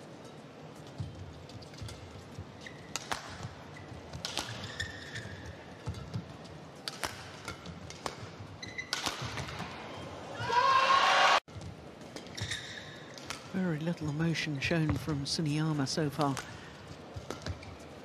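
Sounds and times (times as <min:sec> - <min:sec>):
shoes squeaking on court: 0:00.0 - 0:10.2, 0:11.6 - 0:13.6, 0:14.2 - 0:18.0
racket striking shuttlecock: 0:02.8 - 0:06.2, 0:06.8 - 0:09.8, 0:13.1 - 0:13.5.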